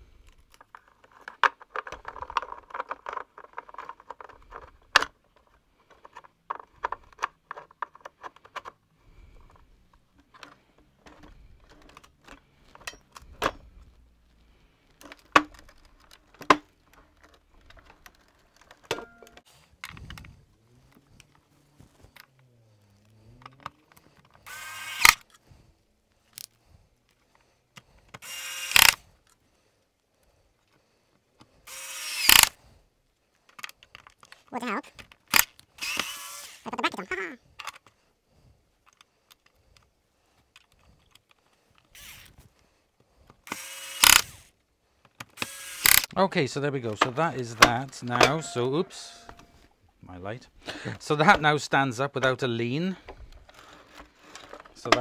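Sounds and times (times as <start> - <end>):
plastic parts clicking and rattling: 0.0 - 29.4, 30.5 - 32.6, 33.3 - 38.0, 38.7 - 49.7, 50.7 - 55.0.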